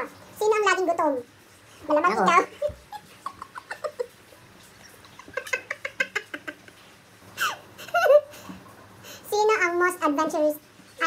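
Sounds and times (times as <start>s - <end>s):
woman laughing: 2.5s - 4.2s, 5.1s - 6.8s, 7.4s - 8.4s.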